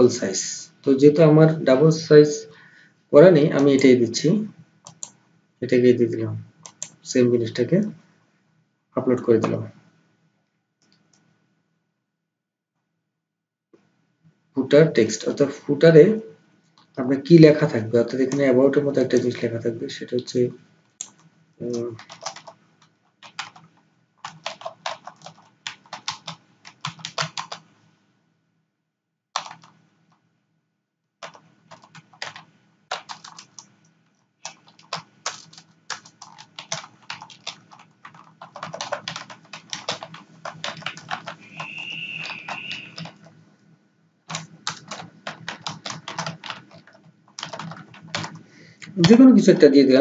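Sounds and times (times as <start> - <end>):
computer keyboard typing: 4.8 - 5.2, 6.6 - 7.0, 18.1 - 19.4, 21.0 - 27.7, 29.4 - 30.2, 31.2 - 43.4, 44.3 - 49.7.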